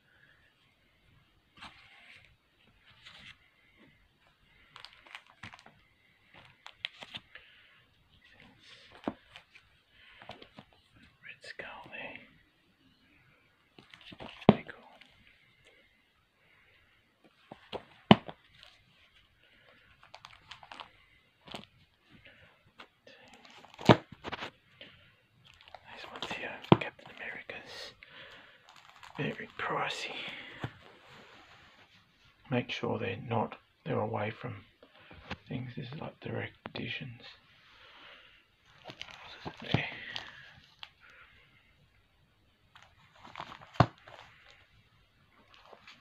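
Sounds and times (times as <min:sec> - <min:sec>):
plastic sleeves crinkling: 0:01.5 - 0:11.1, 0:13.7 - 0:32.0, 0:37.8 - 0:46.0.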